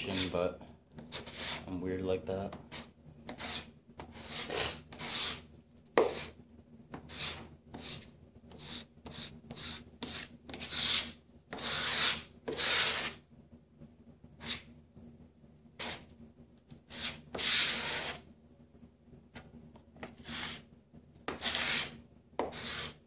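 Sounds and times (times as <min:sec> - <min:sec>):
scraping and rubbing on wood: 0:08.6 - 0:13.2, 0:21.3 - 0:23.0.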